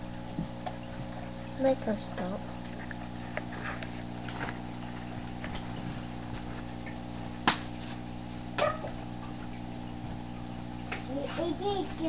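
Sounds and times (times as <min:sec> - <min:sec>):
aquarium air pump humming: 0:00.0 - 0:12.0.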